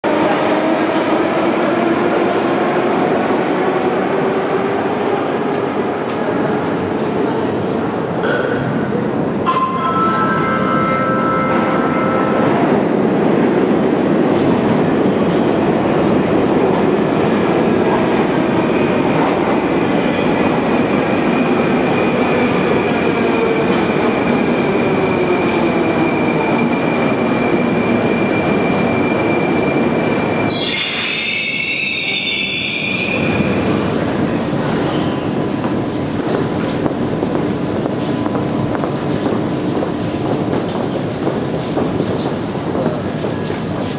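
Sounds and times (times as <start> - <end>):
high whine of train: 0.0 - 43.9
metro train rumbling: 0.0 - 43.9
train brakes squealing: 25.1 - 33.5.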